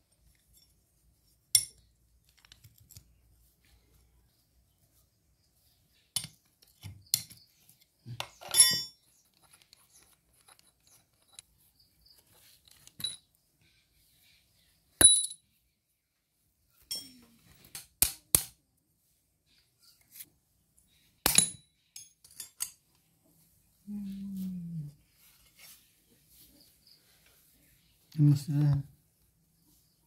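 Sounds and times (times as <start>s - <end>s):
spanner clinking on metal: 8.2s - 9.6s.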